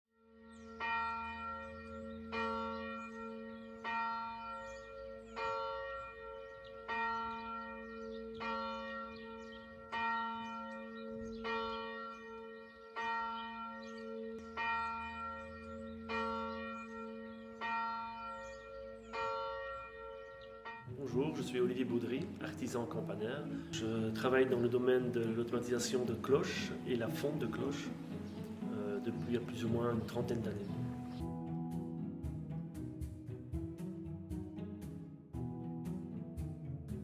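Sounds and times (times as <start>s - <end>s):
large church bell tolling: 0.3s - 28.0s.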